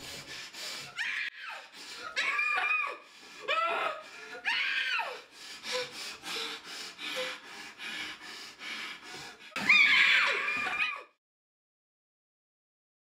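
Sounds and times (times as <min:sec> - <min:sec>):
woman breathing hard through nose: 0:00.0 - 0:01.0, 0:01.6 - 0:02.2, 0:03.0 - 0:04.5, 0:05.1 - 0:09.6.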